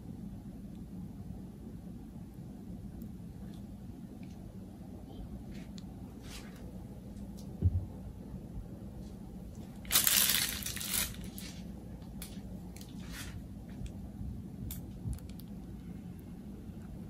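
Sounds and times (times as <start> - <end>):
faint steady hum: 0.0 - 17.0
plastic bag rustling: 9.6 - 13.5.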